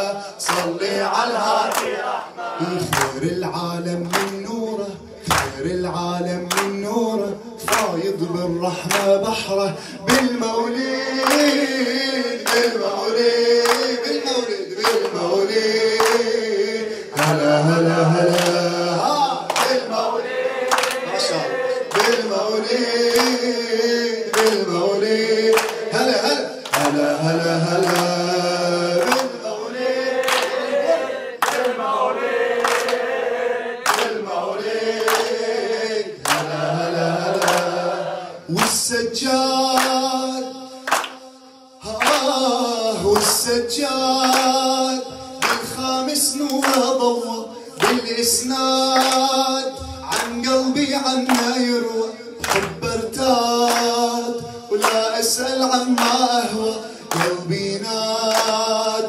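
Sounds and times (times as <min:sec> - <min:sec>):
man singing: 0:00.0 - 0:01.8, 0:02.6 - 0:20.3, 0:21.0 - 0:30.6, 0:34.5 - 0:59.0
voices singing along: 0:00.0 - 0:04.9, 0:06.5 - 0:41.2
steady clapped beat: 0:00.4 - 0:59.0.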